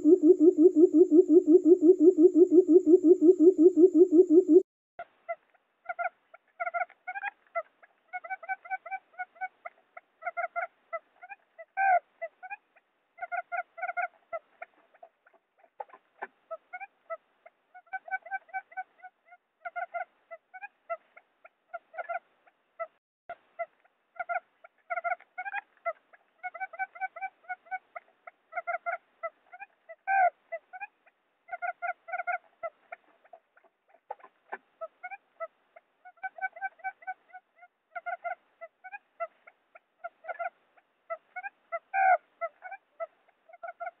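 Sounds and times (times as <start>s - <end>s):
quail call: 0.0s - 4.6s, 5.3s - 12.6s, 13.2s - 14.2s, 23.6s - 44.0s.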